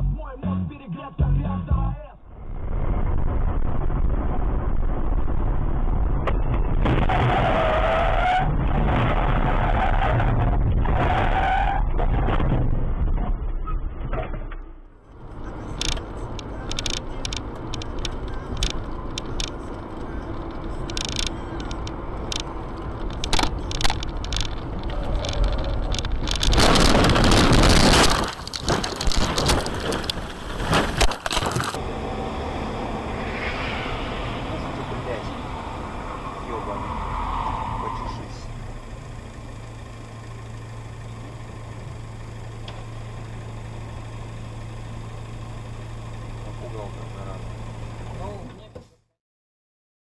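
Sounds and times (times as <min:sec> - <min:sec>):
car road and engine noise: 0:00.0 - 0:49.2
loud rush of noise: 0:02.3 - 0:07.3, 0:23.2 - 0:36.9
sharp clicks: 0:15.7 - 0:30.2.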